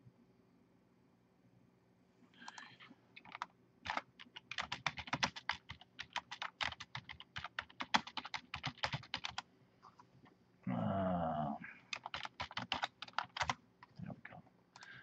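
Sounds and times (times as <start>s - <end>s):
typing on keyboard: 2.5s - 9.4s, 11.9s - 13.9s.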